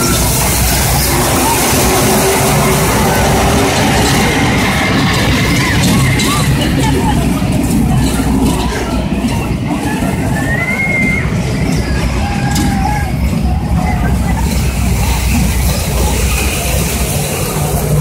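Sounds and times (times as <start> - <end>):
children's voices: 0.0 - 18.0
kiddie train rumbling: 0.0 - 18.0.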